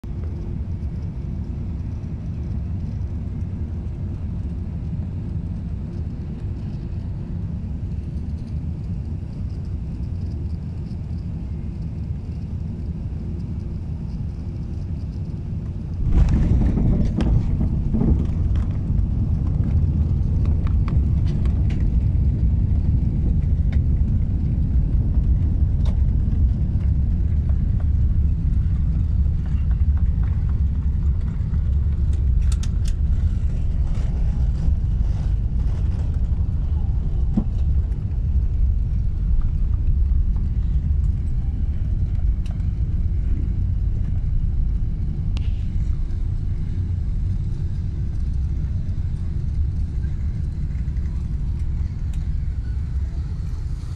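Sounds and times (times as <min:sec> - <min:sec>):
aircraft cabin hum: 0:00.0 - 0:53.9
landing roll rumble: 0:16.0 - 0:41.4.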